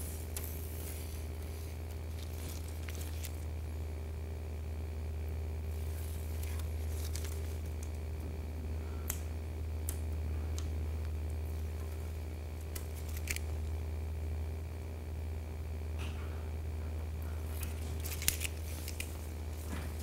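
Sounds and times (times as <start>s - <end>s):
tape backing crinkling: 0.0s - 3.6s, 5.7s - 8.2s, 9.8s - 13.8s, 17.5s - 20.0s
steady low hum: 0.0s - 20.0s.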